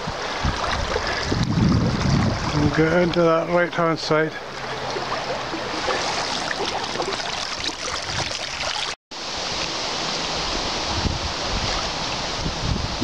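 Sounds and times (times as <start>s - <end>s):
wind buffeting microphone: 0.0s - 3.2s, 9.4s - 13.0s
river water rushing: 4.4s - 13.0s.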